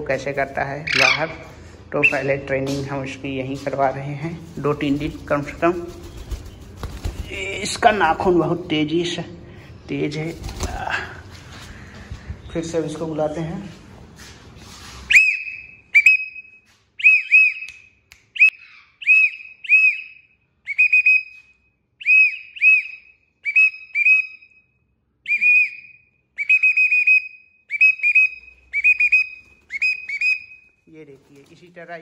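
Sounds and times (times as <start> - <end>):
person whistling short notes: 25.3 - 29.2.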